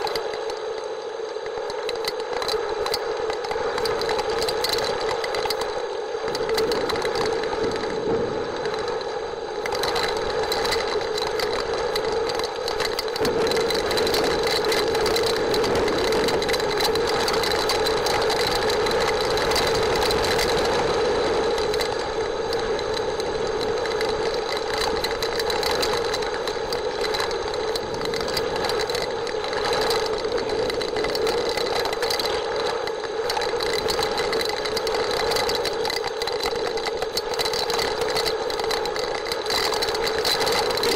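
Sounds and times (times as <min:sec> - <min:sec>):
steady hum: 0:00.0 - 0:40.9.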